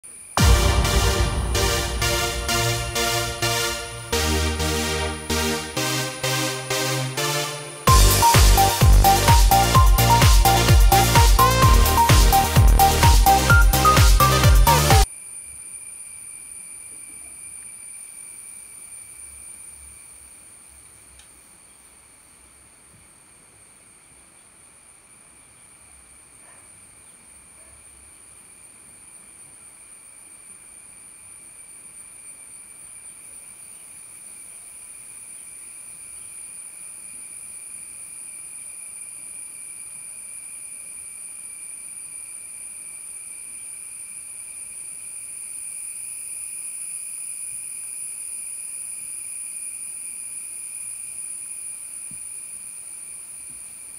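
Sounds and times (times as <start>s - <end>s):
insects chorus: 15.0s - 53.9s.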